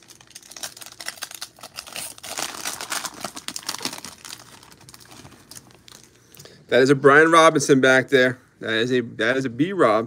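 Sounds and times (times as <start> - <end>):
plastic wrapper tearing and crinkling: 0.0 - 6.2.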